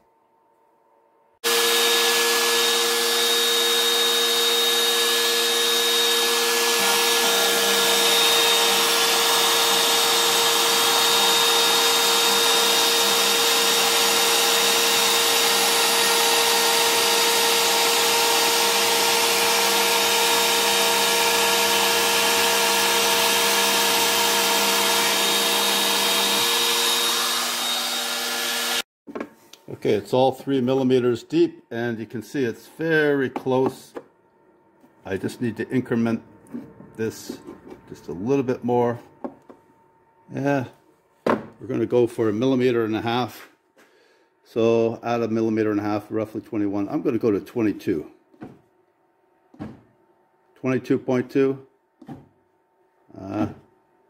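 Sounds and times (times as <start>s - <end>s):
router spindle whining: 1.4s - 28.8s.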